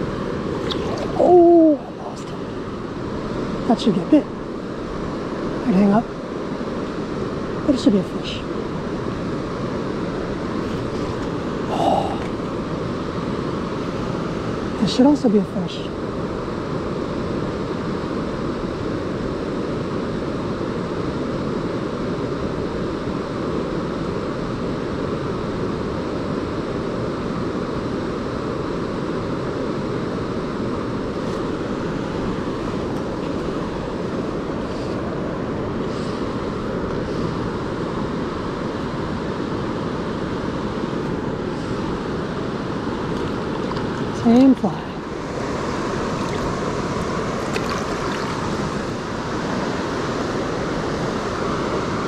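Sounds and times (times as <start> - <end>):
river rushing: 0.0 - 52.0.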